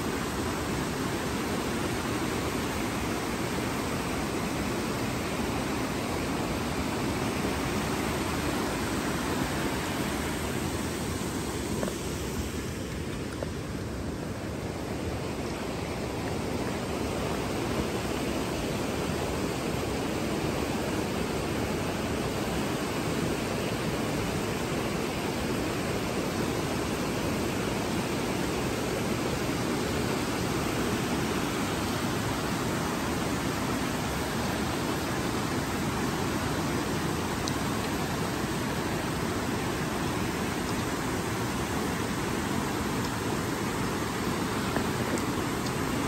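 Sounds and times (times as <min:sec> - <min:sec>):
water rushing over rocks: 0:00.0 - 0:46.0.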